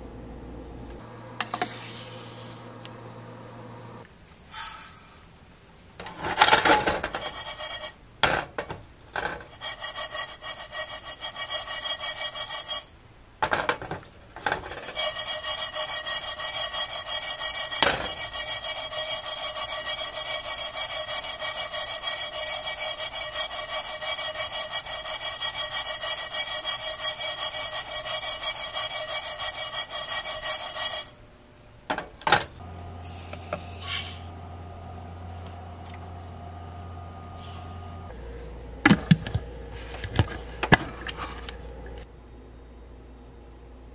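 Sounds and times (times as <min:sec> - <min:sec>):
seeds scraping against a pan: 0:06.8 - 0:08.0, 0:09.2 - 0:12.9, 0:14.4 - 0:31.2, 0:39.2 - 0:41.8.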